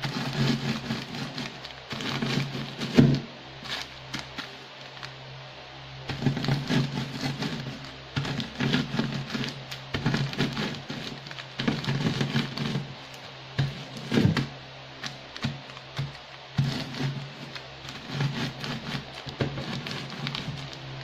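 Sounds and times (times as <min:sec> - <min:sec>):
crackers crunching: 0:00.0 - 0:05.2, 0:06.1 - 0:21.0
plastic wrapper crinkling: 0:03.6 - 0:05.2, 0:06.1 - 0:14.3, 0:16.9 - 0:20.9.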